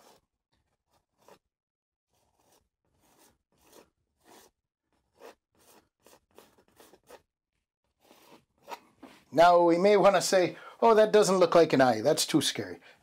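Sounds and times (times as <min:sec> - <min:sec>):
palette knife scraping canvas: 0:00.0 - 0:09.3.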